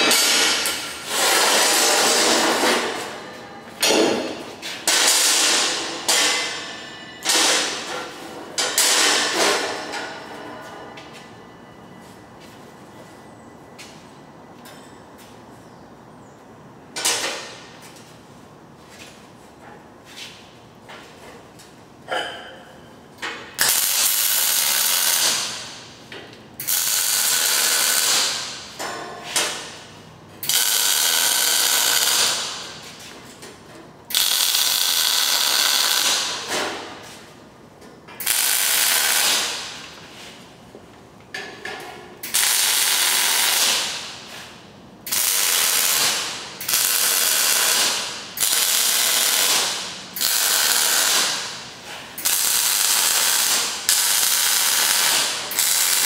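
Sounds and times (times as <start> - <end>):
crackling arc welding: 0.0 - 3.0, 4.8 - 6.6, 23.6 - 26.0, 26.6 - 29.8, 30.4 - 32.9, 34.1 - 36.7, 38.2 - 40.0, 42.2 - 56.0.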